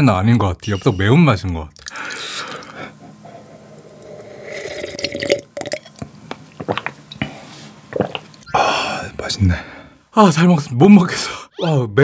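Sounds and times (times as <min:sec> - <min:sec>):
water gulping: 0:00.6 - 0:07.3, 0:07.9 - 0:08.8.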